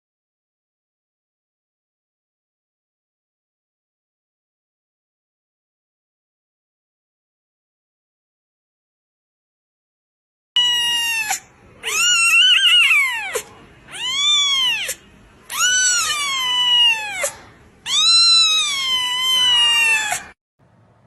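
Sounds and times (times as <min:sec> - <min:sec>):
kitten meowing loudly: 0:10.6 - 0:20.4.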